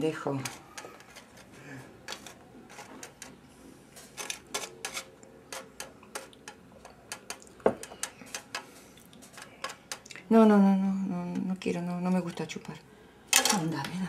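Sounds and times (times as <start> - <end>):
glassware tapping and clinking: 5.6 - 8.6.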